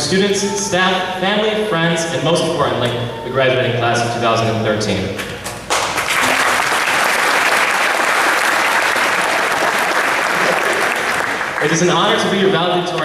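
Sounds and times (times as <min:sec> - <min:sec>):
audience applauding: 0:05.7 - 0:12.5.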